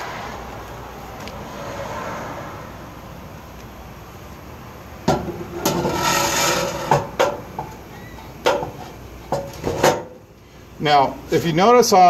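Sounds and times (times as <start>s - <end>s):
metal knocks: 5.1s - 7.8s, 8.4s - 10.2s
metal scraping: 5.1s - 10.1s.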